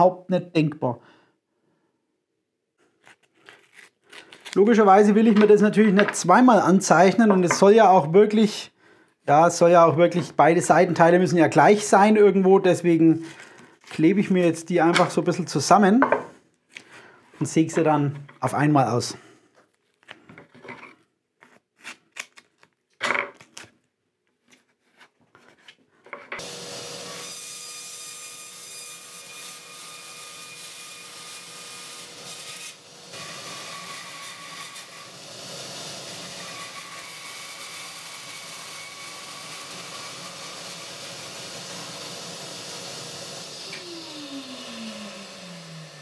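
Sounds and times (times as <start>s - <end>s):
masking tape tearing and rubbing: 2.9s - 4.7s, 21.4s - 23.8s
band saw cutting wood: 26.4s - 46.0s.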